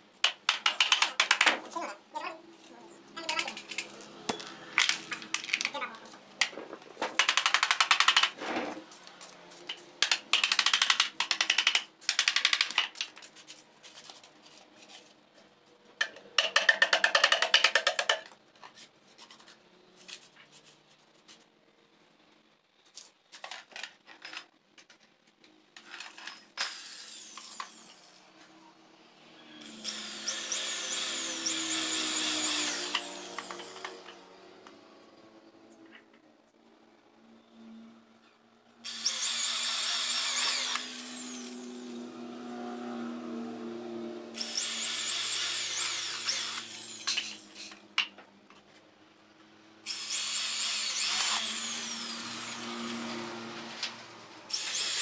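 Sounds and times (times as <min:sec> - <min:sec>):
clicks and taps: 0:00.2 - 0:01.6
electric hand drill running: 0:29.6 - 0:34.2, 0:38.8 - 0:42.0, 0:44.3 - 0:47.8, 0:49.9 - 0:53.9, 0:54.5 - 0:55.0.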